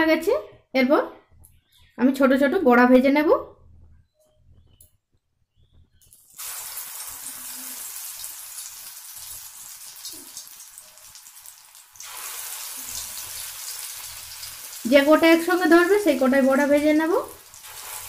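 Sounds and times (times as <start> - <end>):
batter deep-frying in oil: 6.1 - 18.0.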